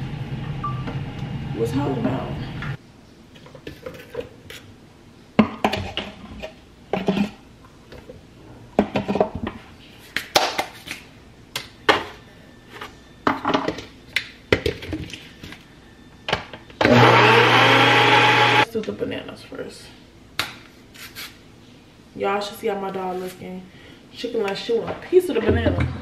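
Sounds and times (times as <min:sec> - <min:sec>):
blender motor running: 0:16.8 - 0:18.6.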